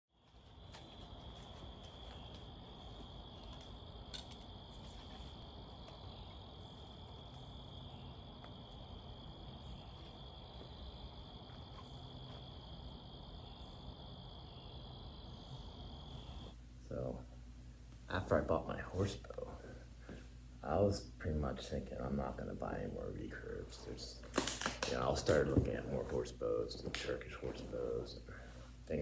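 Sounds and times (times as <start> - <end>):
insects trilling: 0.1 - 17.2
low even hum: 0.1 - 29.0.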